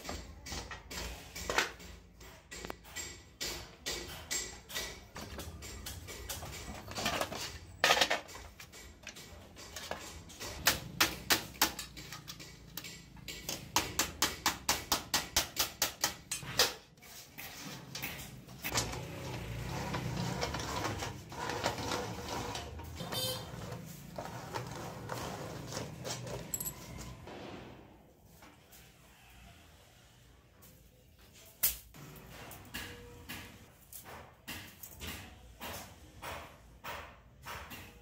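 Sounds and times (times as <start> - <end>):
knocks and scraping of metal: 0.0 - 28.0.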